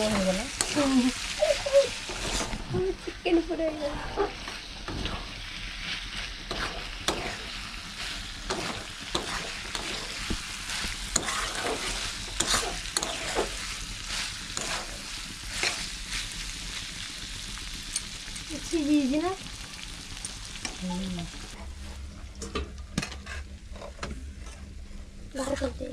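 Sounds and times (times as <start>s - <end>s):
chicken sizzling in a pan: 0.0s - 21.9s
spatula scraping pan: 0.6s - 16.3s.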